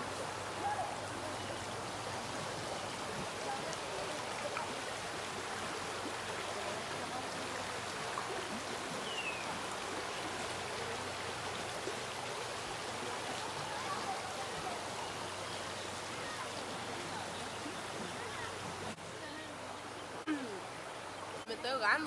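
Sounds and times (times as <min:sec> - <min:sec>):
river rippling over stones: 0:00.0 - 0:22.0.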